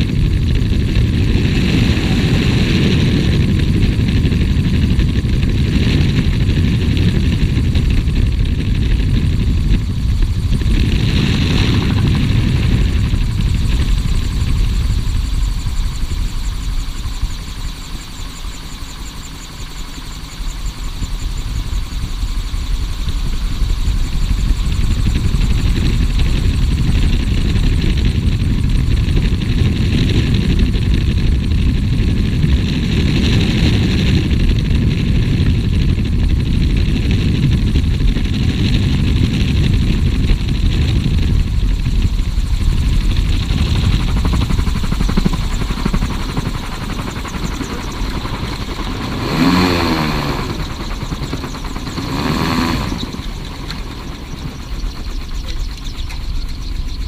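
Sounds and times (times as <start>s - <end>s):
gyrocopter engine and airflow: 0.0s - 57.0s.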